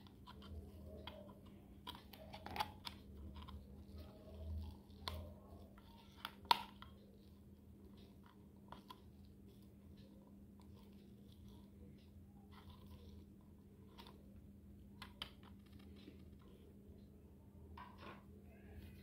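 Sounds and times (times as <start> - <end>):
faint steady hum: 0.0 - 19.0.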